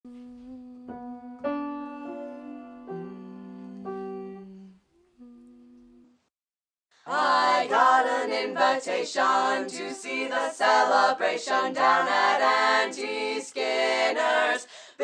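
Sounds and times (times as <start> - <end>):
group singing in harmony: 2.0 - 4.7, 7.0 - 15.0.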